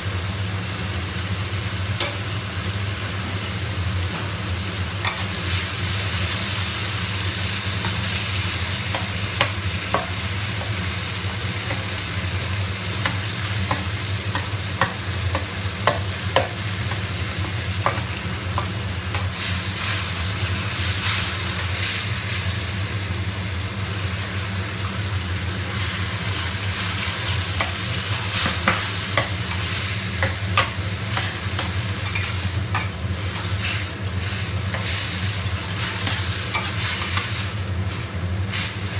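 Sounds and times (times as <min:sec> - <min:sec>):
tomatoes sizzling in wok: 0:00.0 - 0:38.9
metal spatula scraping wok: 0:05.0 - 0:05.8, 0:13.0 - 0:22.3, 0:26.4 - 0:38.0.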